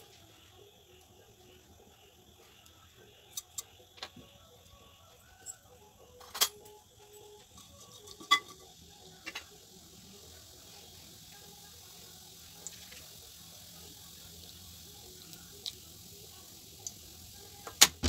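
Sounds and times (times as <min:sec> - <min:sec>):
seeds popping in hot oil: 0:06.7 - 0:18.0
faint hiss: 0:07.1 - 0:18.0.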